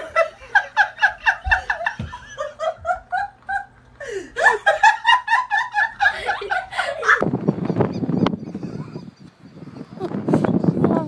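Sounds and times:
person laughing hard: 0:00.0 - 0:09.2.

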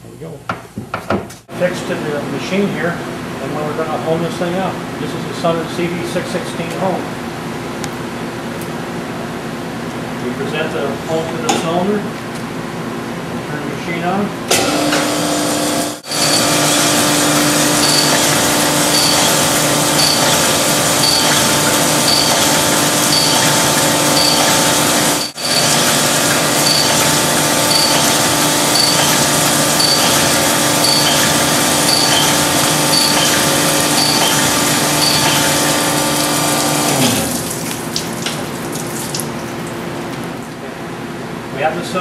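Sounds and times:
honing machine running: 0:14.6 - 0:37.2.

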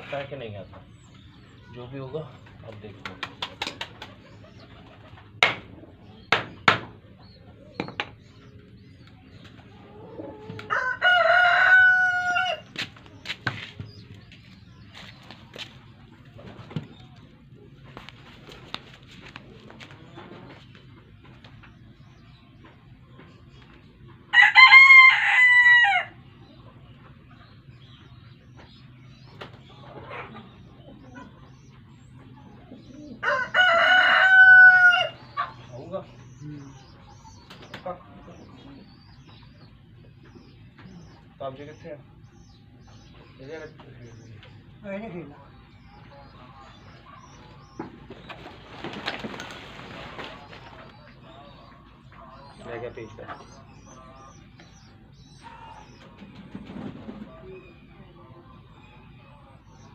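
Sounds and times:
rooster crowing: 0:10.2 - 0:12.6, 0:24.3 - 0:26.2, 0:33.2 - 0:35.3.

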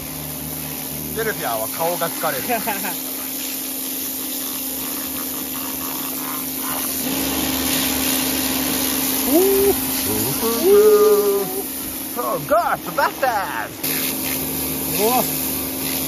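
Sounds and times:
pressure washer motor humming: 0:00.0 - 0:16.0
water jet hissing on wall: 0:00.0 - 0:16.0
man calling out: 0:09.2 - 0:13.8, 0:14.9 - 0:15.3.

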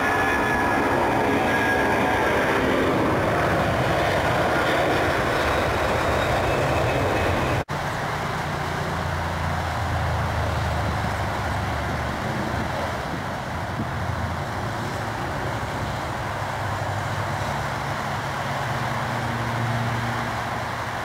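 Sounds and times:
deep aircraft rumble: 0:00.0 - 0:07.7
jet engine noise: 0:00.0 - 0:21.0.

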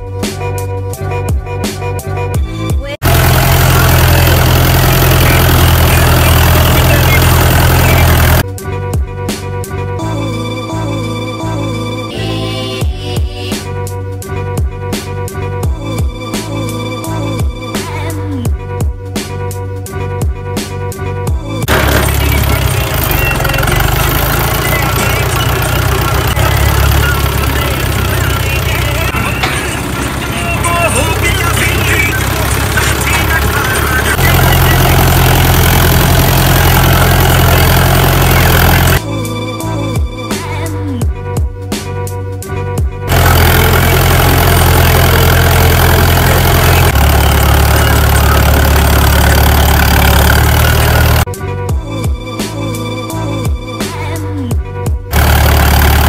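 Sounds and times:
tractor diesel engine running: 0:02.4 - 0:08.5, 0:21.4 - 0:40.0, 0:43.1 - 0:51.3, 0:55.1 - 0:56.0.

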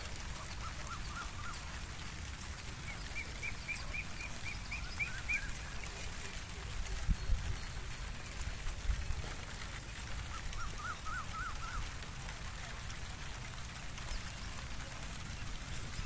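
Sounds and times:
low outdoor rumble: 0:00.0 - 0:16.0
bird chirping: 0:02.8 - 0:06.3.

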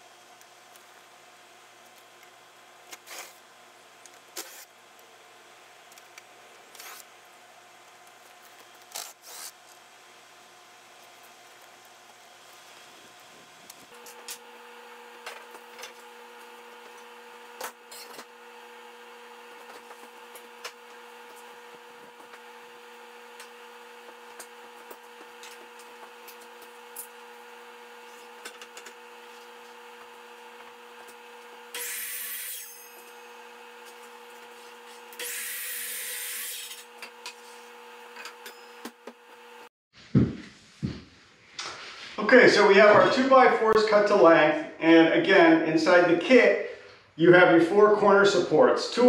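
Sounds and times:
steady background hum: 0:00.0 - 0:49.0
miter saw cutting wood: 0:13.9 - 0:39.7.

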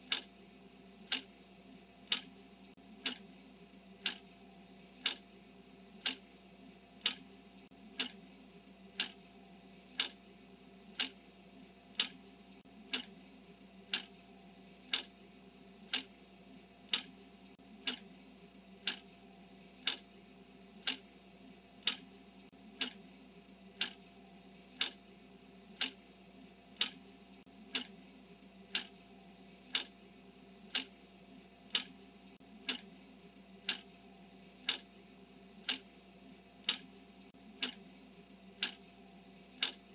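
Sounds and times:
timer ticking: 0:00.0 - 0:00.3, 0:01.0 - 0:01.4, 0:02.0 - 0:02.4, 0:03.0 - 0:03.3, 0:04.0 - 0:04.3, 0:05.0 - 0:05.2, 0:06.0 - 0:06.4, 0:07.0 - 0:08.2, 0:08.9 - 0:09.3, 0:09.9 - 0:10.2, 0:10.9 - 0:12.3, 0:12.9 - 0:13.2, 0:13.9 - 0:14.2, 0:14.9 - 0:15.1, 0:15.8 - 0:16.2, 0:16.9 - 0:17.2, 0:17.8 - 0:18.1, 0:18.8 - 0:19.1, 0:19.8 - 0:20.1, 0:20.8 - 0:21.1, 0:21.8 - 0:22.1, 0:22.7 - 0:23.1, 0:23.8 - 0:24.0, 0:24.7 - 0:25.0, 0:25.7 - 0:26.1, 0:26.8 - 0:28.0, 0:28.7 - 0:29.0, 0:29.7 - 0:30.0, 0:30.7 - 0:31.0, 0:31.7 - 0:32.0, 0:32.6 - 0:33.0, 0:33.6 - 0:34.9, 0:35.6 - 0:36.0, 0:36.6 - 0:37.9, 0:38.5 - 0:39.9.

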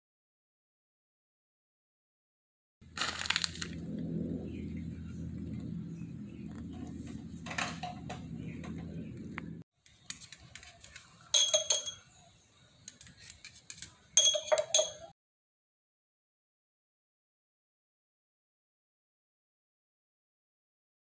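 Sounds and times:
low steady hum: 0:02.8 - 0:09.6
small metal parts clinking: 0:09.9 - 0:12.0, 0:12.9 - 0:15.1.

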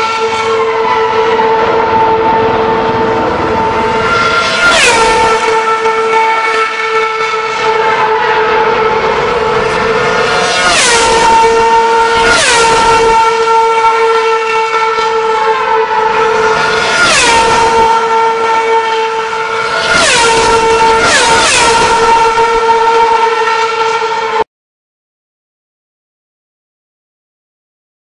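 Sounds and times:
engine whine of approaching cars: 0:00.0 - 0:24.4
racing cars passing at speed: 0:00.0 - 0:24.4.

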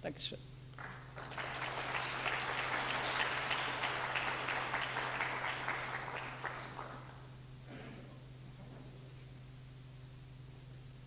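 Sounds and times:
audience applauding: 0:00.8 - 0:07.4.

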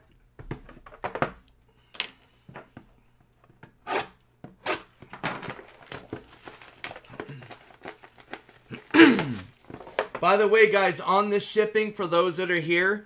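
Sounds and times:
shrink wrap tearing and crinkling: 0:04.7 - 0:10.0.

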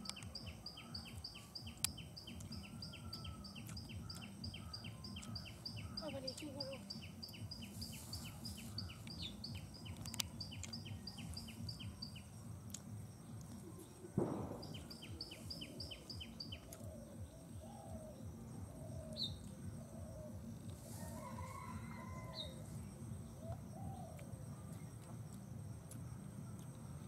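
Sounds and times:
small bird chirping: 0:00.0 - 0:18.2
low outdoor background noise: 0:00.0 - 0:27.0
thump: 0:14.2 - 0:14.9.

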